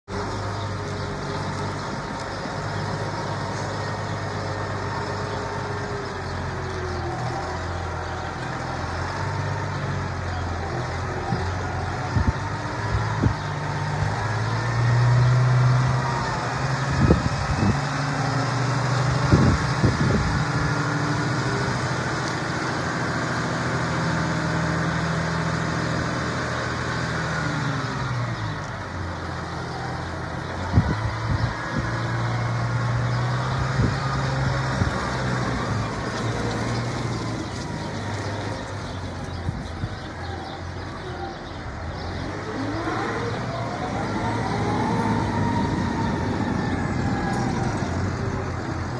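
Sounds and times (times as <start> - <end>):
tractor diesel engine running: 0.1 - 48.9.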